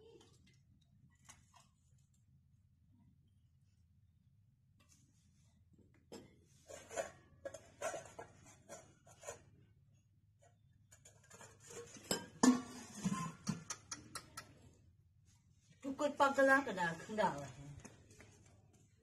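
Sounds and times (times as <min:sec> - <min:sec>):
steel plates and bowls clinking: 0:11.1 - 0:13.8
spoon clinking in steel bowl: 0:12.0 - 0:12.8.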